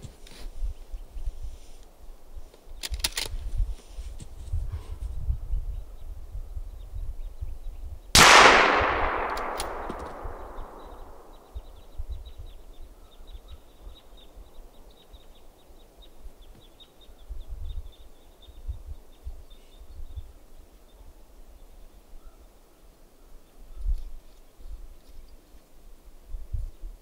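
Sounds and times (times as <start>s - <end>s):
sharp clicks: 8.2s - 11.4s
rifle shot: 8.2s - 11.5s.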